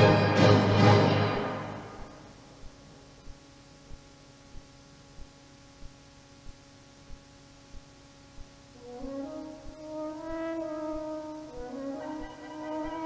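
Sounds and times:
soft orchestral chord: 0.0 - 2.4
soft low pulse: 1.9 - 13.0.

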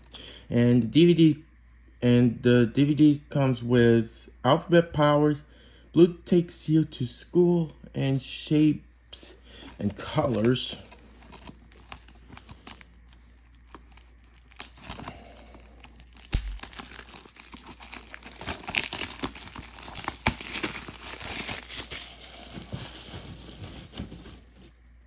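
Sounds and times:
plastic wrap crinkling and tearing: 9.6 - 25.0.

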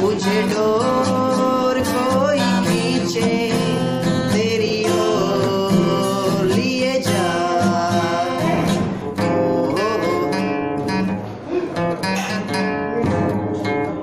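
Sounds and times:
men singing: 0.0 - 10.3
strummed acoustic guitar: 0.0 - 14.0.

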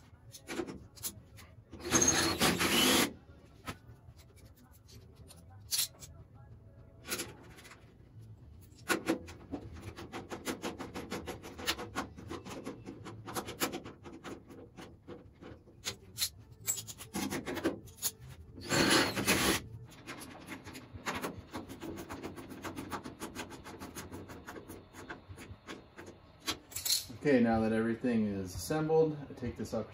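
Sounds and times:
rough metal scrape: 18.6 - 19.6.

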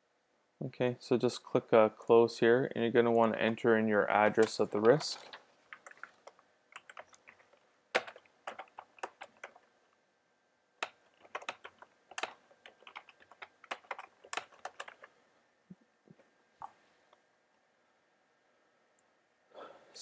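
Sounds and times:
typing on computer keyboard: 4.2 - 9.7, 10.8 - 15.2.

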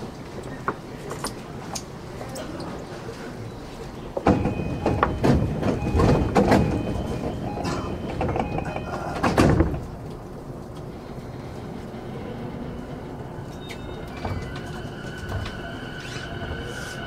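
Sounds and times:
train doors knocking and thudding: 4.1 - 10.0.

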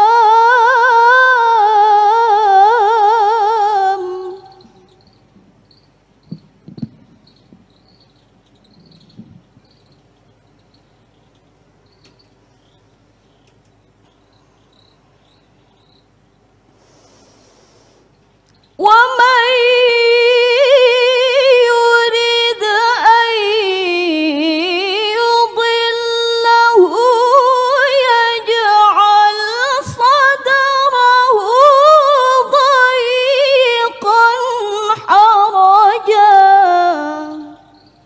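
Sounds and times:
woman reciting melodically: 0.0 - 5.3, 18.7 - 38.0.

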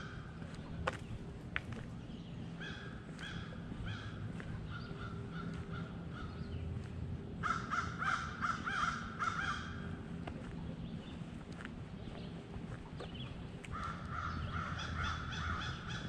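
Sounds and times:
low background rumble: 0.0 - 16.0
crow cawing: 2.6 - 6.5, 7.4 - 10.0, 13.7 - 16.0.

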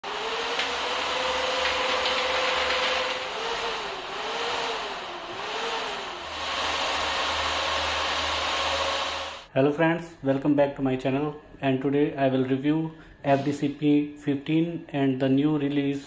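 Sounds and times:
cooling fans rushing air: 0.0 - 9.5.

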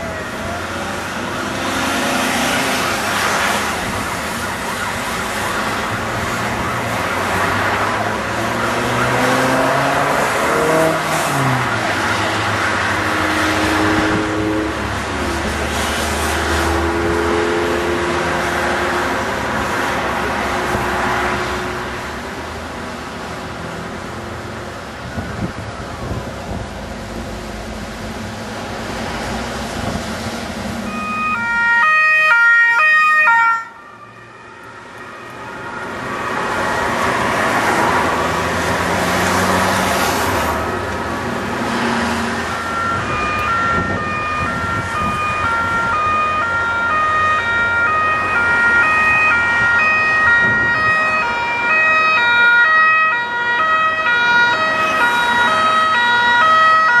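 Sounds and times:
two-tone emergency siren: 0.0 - 14.8, 30.8 - 38.2, 42.0 - 57.0
ambulance siren: 0.0 - 21.4, 30.8 - 41.0, 41.6 - 57.0
road traffic passing: 0.0 - 57.0.

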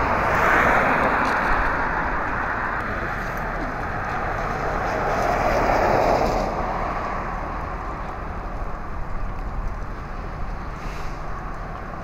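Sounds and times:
passing vehicle rushing: 0.0 - 7.9.

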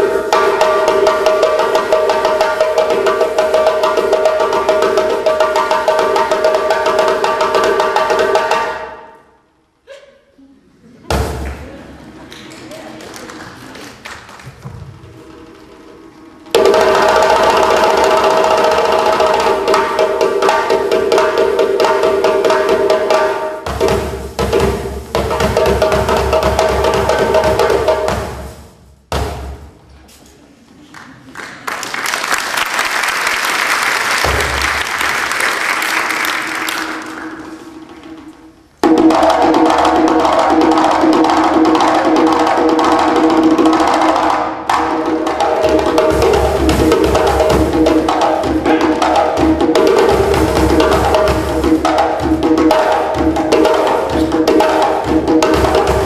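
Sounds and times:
djembe drumming: 0.0 - 9.1, 11.0 - 12.3, 13.9 - 29.9, 34.1 - 56.0
audience applause: 11.4 - 15.2, 30.8 - 37.7.

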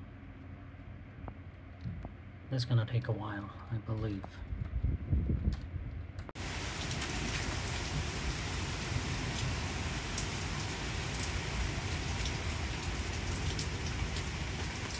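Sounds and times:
heavy rain on patio and lawn: 6.4 - 14.9.

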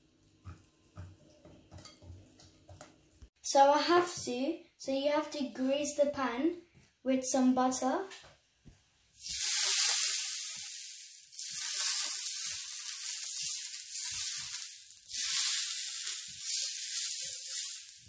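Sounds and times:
butter sizzling on griddle: 9.2 - 18.0.

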